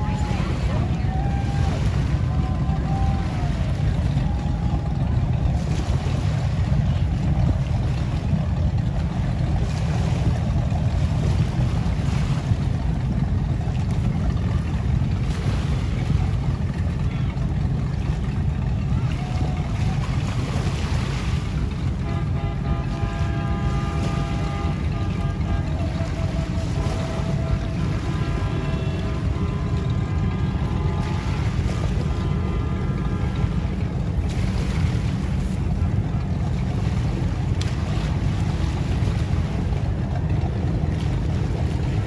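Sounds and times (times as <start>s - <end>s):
motorboats passing: 0.0s - 42.0s
water wash: 0.0s - 42.0s.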